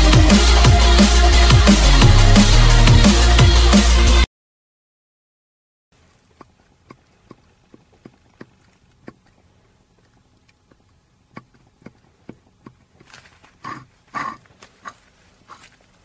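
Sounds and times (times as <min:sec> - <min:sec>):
rustle and knock: 0:06.0 - 0:16.0.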